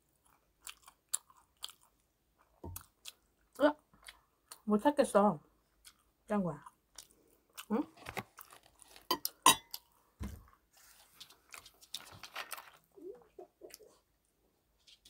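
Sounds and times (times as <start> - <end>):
fork clinking on ceramic plate: 9.1 - 9.8.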